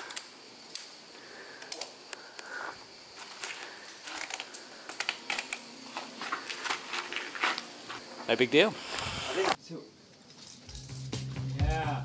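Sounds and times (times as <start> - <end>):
climbing gear clicks and clinks: 3.2 - 7.6.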